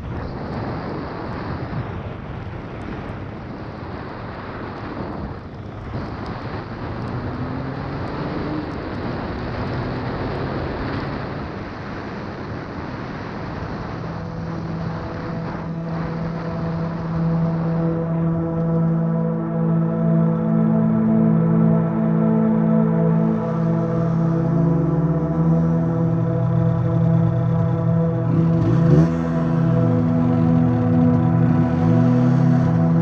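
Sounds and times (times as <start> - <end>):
wind rushing over microphone: 0.0 - 19.8
low musical drone: 4.0 - 33.0.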